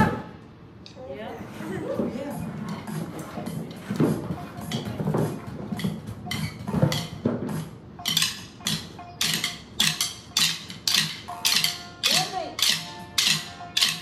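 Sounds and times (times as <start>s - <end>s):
music: 1.5s - 14.0s
drumsticks tapping: 4.6s - 14.0s.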